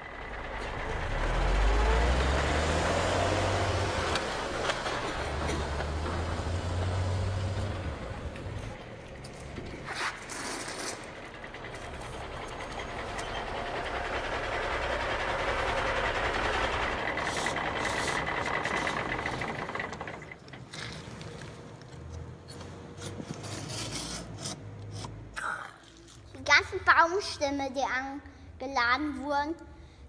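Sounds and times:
wooden sliding doors scraping: 2.2 - 8.8.

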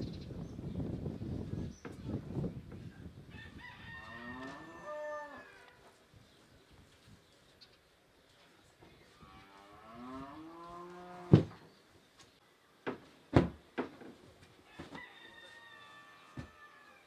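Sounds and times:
rooster crowing: 3.3 - 5.8, 14.7 - 17.0.

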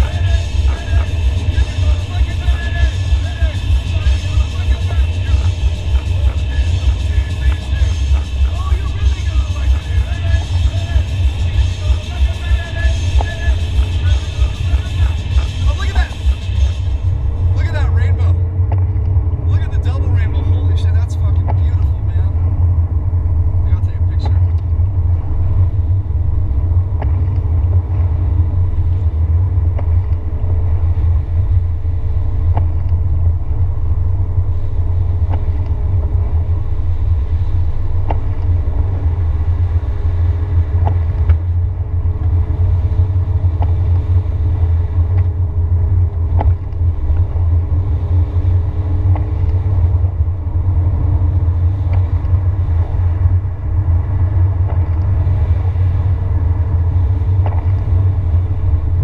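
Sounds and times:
faint hum drifting in pitch: 0.0 - 59.0
road and engine rumble: 0.0 - 59.0
light ticks: 35.2 - 35.8, 45.1 - 45.4, 46.1 - 47.4, 49.1 - 49.6, 51.8 - 52.4, 54.6 - 55.2.

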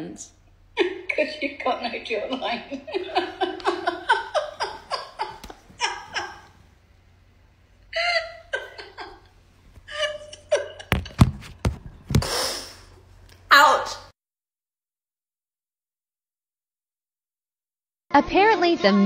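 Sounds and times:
woman laughing: 0.8 - 6.6, 7.9 - 11.2
sharp thumps: 10.8 - 12.4.

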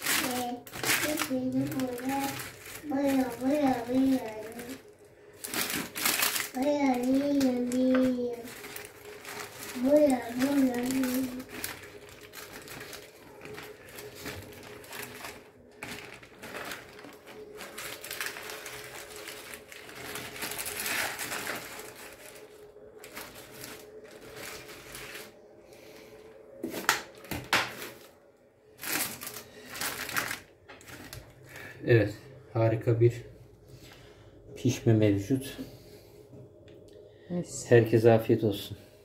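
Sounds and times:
baking paper crinkling: 0.0 - 25.9, 26.6 - 31.7.

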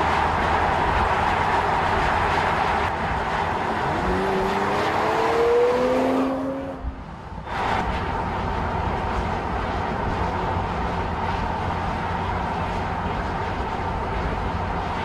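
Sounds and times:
car engine accelerating: 0.0 - 8.1.

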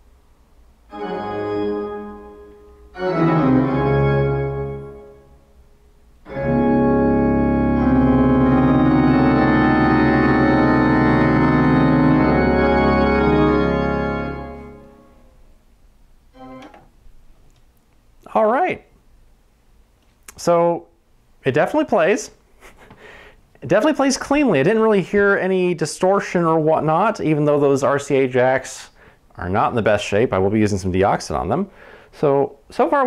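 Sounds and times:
organ chords over loudspeakers: 0.9 - 5.4, 6.2 - 15.3, 16.3 - 16.8.

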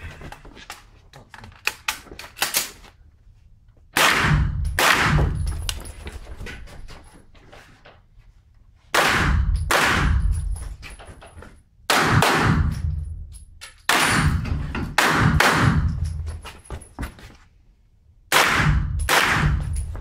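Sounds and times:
rifle shots echoing indoors: 3.9 - 5.8, 8.9 - 10.6, 11.8 - 16.2, 18.3 - 20.0.

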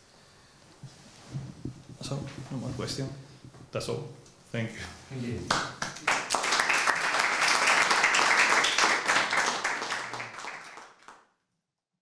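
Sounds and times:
audience applauding: 5.5 - 11.3.

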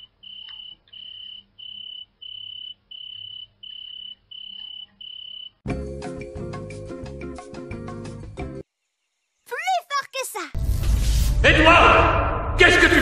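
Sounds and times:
crickets chirping: 0.0 - 5.6.

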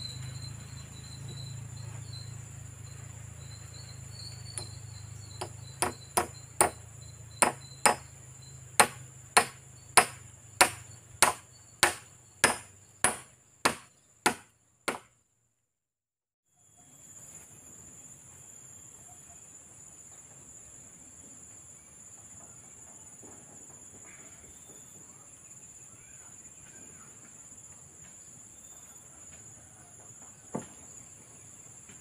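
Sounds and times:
insects chirring: 0.0 - 15.1
hand tool striking wooden log: 4.6 - 4.8, 5.4 - 6.8, 7.4 - 8.0, 8.8 - 15.1.

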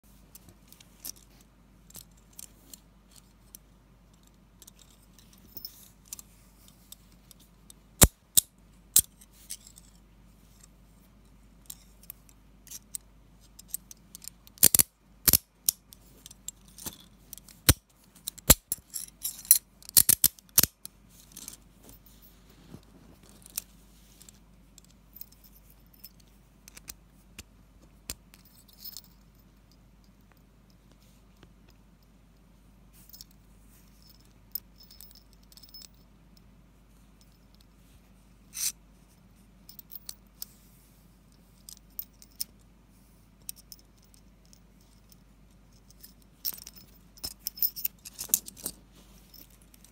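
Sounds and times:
handcuffs clicking and rattling: 12.6 - 22.0, 34.8 - 36.0, 45.8 - 49.9.

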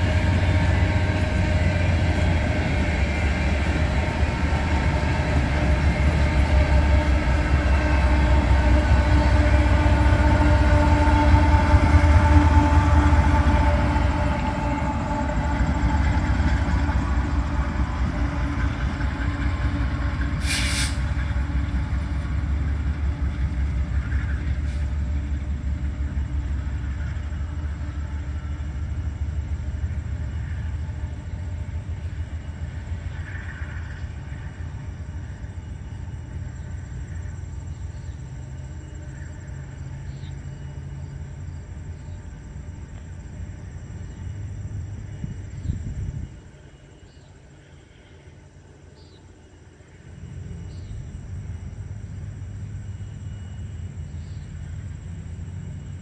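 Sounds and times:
diesel locomotive engine drone: 0.0 - 56.0
freight train rumbling: 0.0 - 56.0
brief hiss: 20.4 - 21.1.

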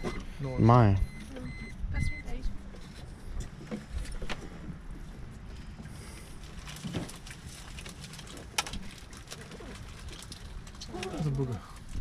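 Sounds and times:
water lapping against boat hull: 3.1 - 11.9.

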